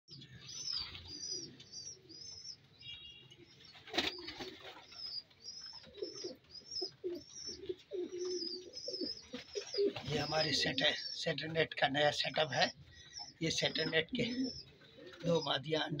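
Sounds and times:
pigeon wings flapping: 0:03.8 - 0:04.8
pigeon cooing: 0:05.6 - 0:11.2, 0:13.2 - 0:16.0.

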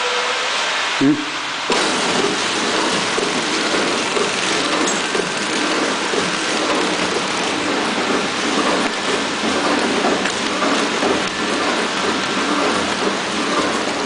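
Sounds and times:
packaging machine clatter and hiss: 0:01.7 - 0:14.0.

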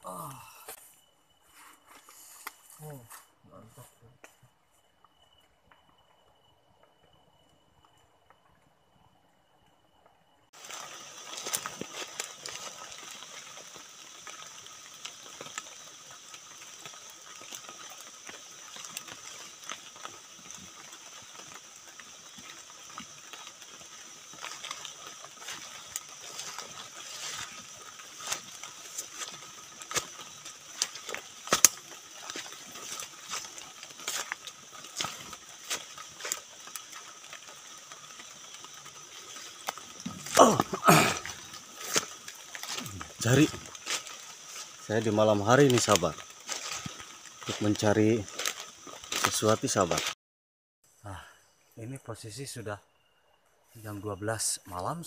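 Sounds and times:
high-pitched insect chorus: 0:00.0 - 0:50.2, 0:50.9 - 0:55.0
irregular ticks and clicks: 0:10.0 - 0:40.4.

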